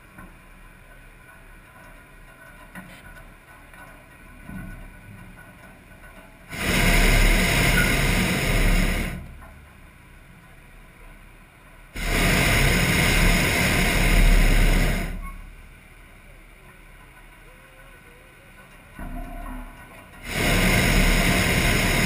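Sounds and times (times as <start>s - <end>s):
propane burner blasts: 6.4s - 9.5s, 11.9s - 15.7s, 20.1s - 22.0s.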